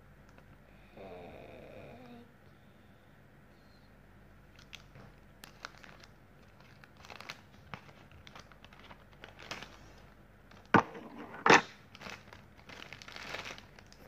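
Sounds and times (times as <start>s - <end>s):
plastic bag crinkling: 4.5s - 14.0s.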